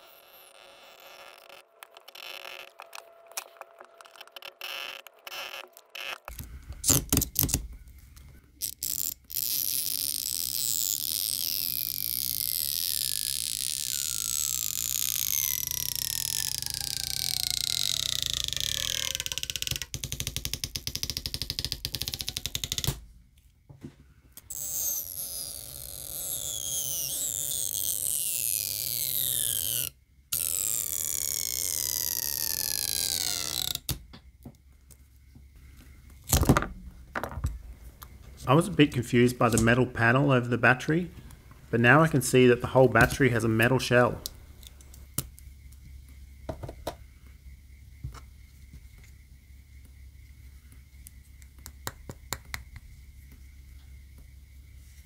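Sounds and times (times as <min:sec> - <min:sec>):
adhesive strip squealing: 0:00.0 - 0:07.6, 0:08.6 - 0:23.0, 0:24.5 - 0:34.0.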